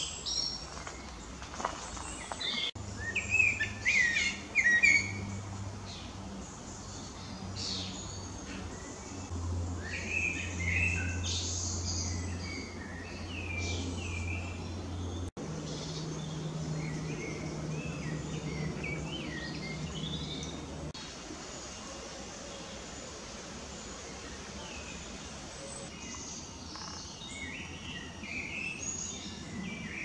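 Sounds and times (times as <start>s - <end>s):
birds singing: 0.0s - 23.2s, 23.8s - 30.0s
steady low hum: 1.1s - 22.4s.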